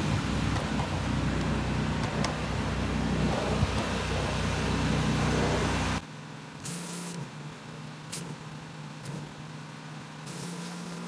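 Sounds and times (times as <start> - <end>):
pressure washer engine running: 0.0 - 6.0, 6.6 - 11.0.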